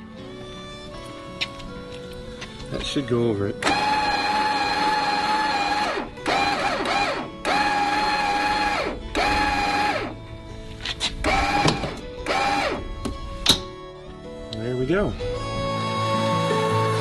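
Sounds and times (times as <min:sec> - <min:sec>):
electric motor whine: 0:03.6 - 0:13.4.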